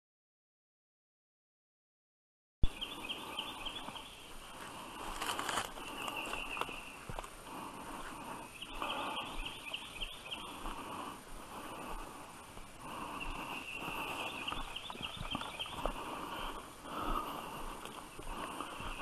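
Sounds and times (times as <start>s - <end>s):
footsteps crunching through leaves: 4.6s - 7.3s.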